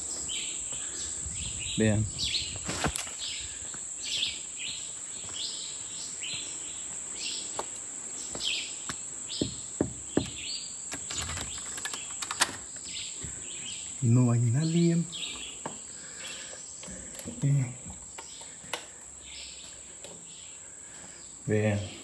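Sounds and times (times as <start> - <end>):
insects droning: 0.0 - 22.0
footsteps on dirt path: 2.6 - 10.5.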